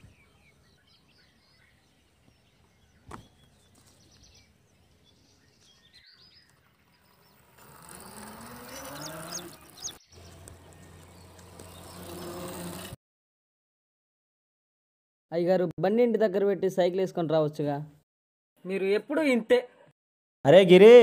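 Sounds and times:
birds chirping: 0:00.0 - 0:13.0
faint open-air ambience: 0:00.0 - 0:13.0
moped starting and running: 0:06.7 - 0:13.0.

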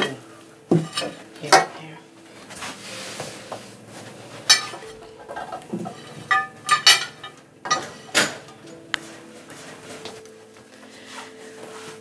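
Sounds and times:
plates clinking and clattering: 0:00.0 - 0:01.8, 0:04.3 - 0:09.2
soft rustle: 0:02.0 - 0:05.1, 0:08.8 - 0:12.0.

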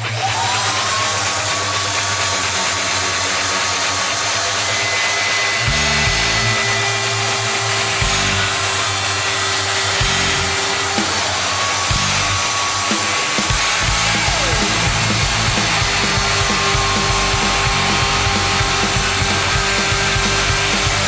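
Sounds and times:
power tool cutting ice: 0:00.0 - 0:21.0
background music beats: 0:10.1 - 0:21.0.

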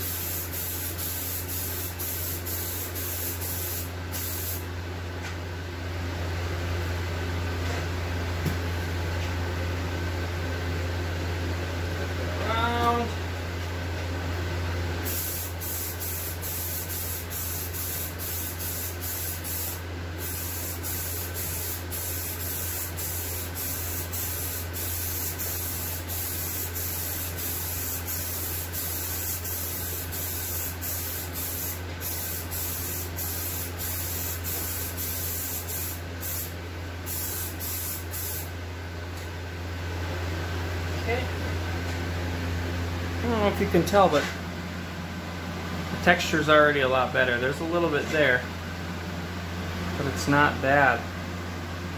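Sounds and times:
aerosol can spraying hiss: 0:00.0 - 0:04.6, 0:15.1 - 0:36.5, 0:37.1 - 0:38.5
ventilation fan humming: 0:00.0 - 0:51.9.

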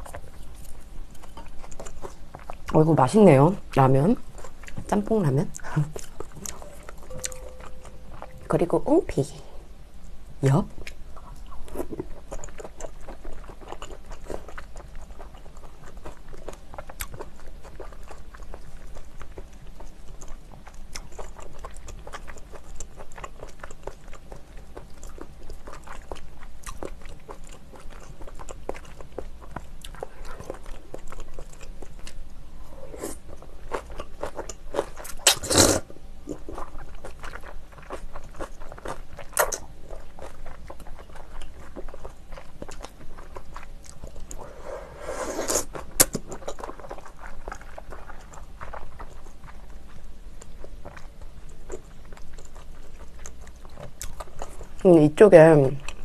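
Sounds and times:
chewing with wet mouth clicks: 0:00.0 - 0:02.8, 0:03.6 - 0:08.5, 0:10.0 - 0:32.2, 0:33.1 - 0:35.4, 0:36.2 - 0:44.4, 0:45.6 - 0:54.9, 0:55.8 - 0:56.0.

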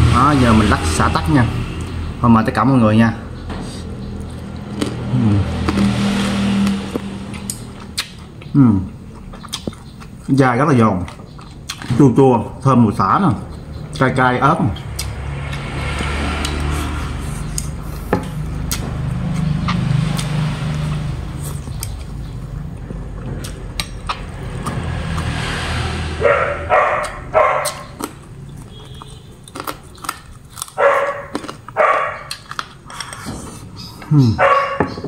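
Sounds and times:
crunchy food chewing: 0:04.0 - 0:10.4, 0:11.0 - 0:11.9, 0:14.8 - 0:34.8
dog barking: 0:26.2 - 0:28.0, 0:30.8 - 0:32.4, 0:34.4 - 0:35.0.

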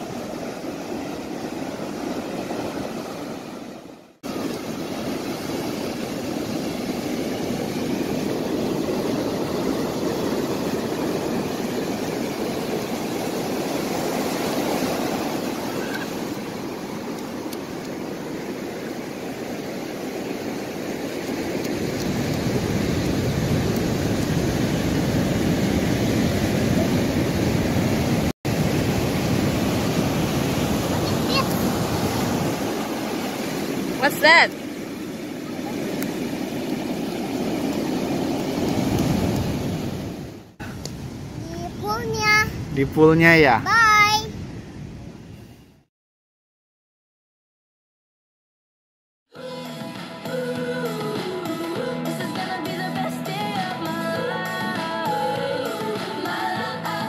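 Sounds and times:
ocean surf breaking: 0:00.0 - 0:45.2.

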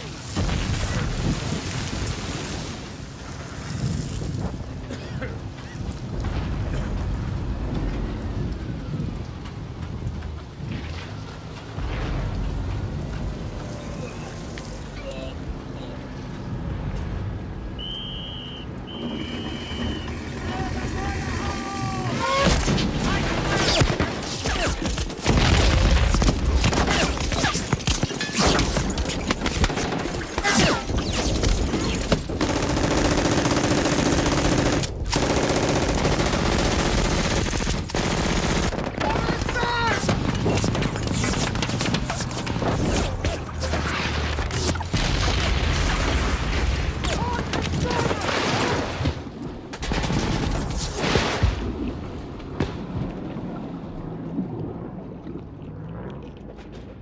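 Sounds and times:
machine-gun and rifle fire: 0:23.3 - 0:42.8
bubbling water underwater: 0:53.2 - 0:56.9.

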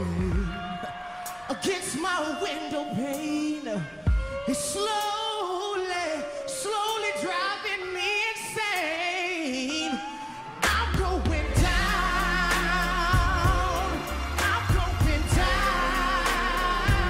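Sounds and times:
man singing soul: 0:00.0 - 0:17.0
band bass and drums: 0:10.6 - 0:17.0.

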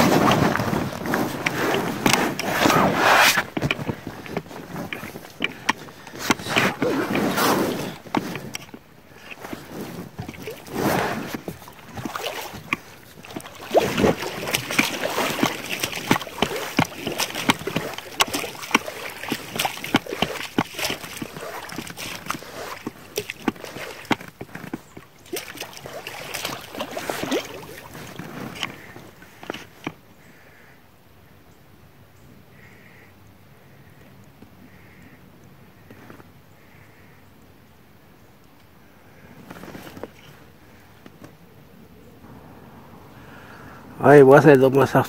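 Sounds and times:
knocks and clicks on hull: 0:00.0 - 0:30.0
water sloshing against boat: 0:00.0 - 0:30.6, 0:39.1 - 0:45.0.

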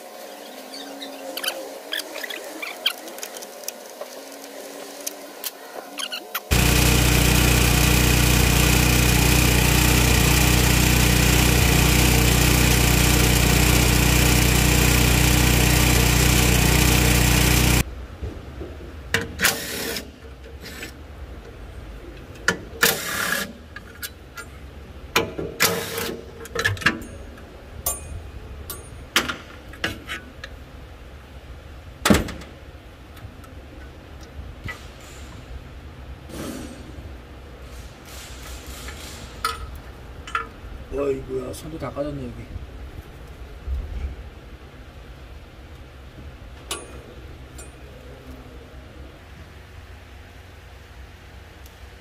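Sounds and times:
engine running: 0:06.5 - 0:17.9.

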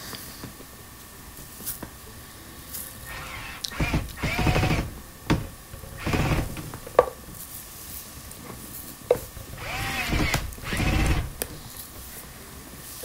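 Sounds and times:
sharp clicks: 0:03.1 - 0:05.4
cordless drill motor whirring: 0:03.1 - 0:06.8, 0:09.5 - 0:11.6.

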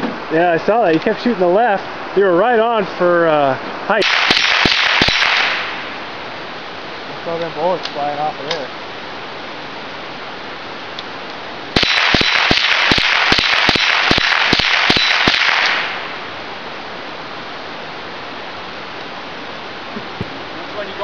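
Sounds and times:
loud hiss: 0:00.0 - 0:18.6
rapid gunshots: 0:04.0 - 0:05.8, 0:11.8 - 0:16.2.

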